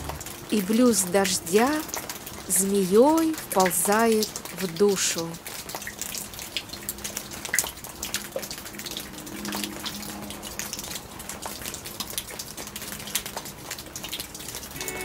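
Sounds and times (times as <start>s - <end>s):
rain falling steadily: 0.0s - 15.0s
sharp nearby drips: 0.0s - 15.0s.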